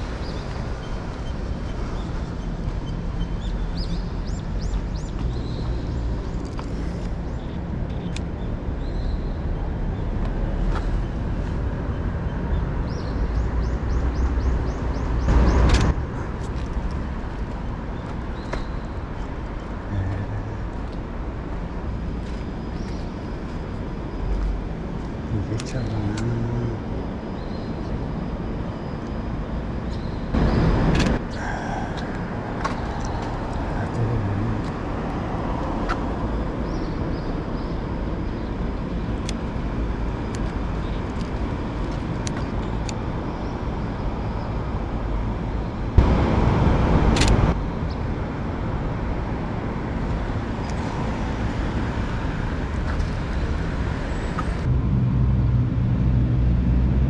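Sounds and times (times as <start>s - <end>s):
road traffic: 0.0s - 57.0s
rushes of noise: 30.4s - 36.2s.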